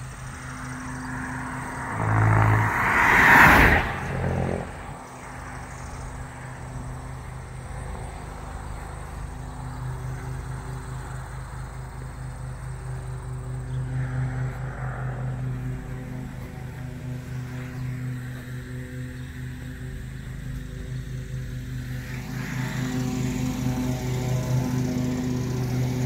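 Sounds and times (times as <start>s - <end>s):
car driving past: 0.0s - 20.3s.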